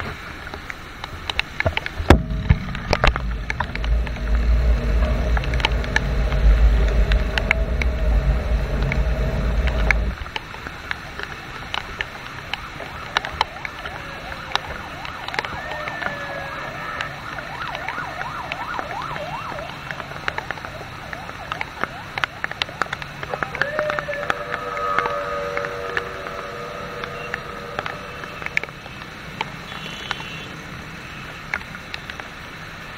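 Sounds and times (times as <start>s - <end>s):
traffic on a wet road: 0.0s - 32.9s
sharp ticks: 0.7s - 16.0s, 17.0s - 30.5s
heavy low rumble: 1.8s - 10.4s, 23.2s - 29.4s
siren yelping: 12.5s - 29.1s.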